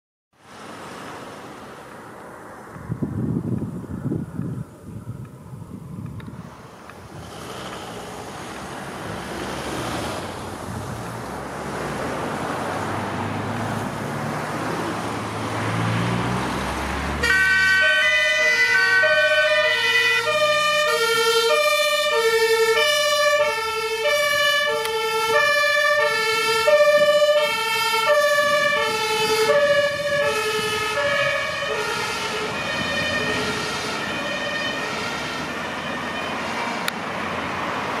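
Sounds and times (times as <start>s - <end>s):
road noise: 0.3s - 38.0s
van engine rising in pitch: 6.4s - 38.0s
two-tone emergency siren: 17.1s - 36.9s.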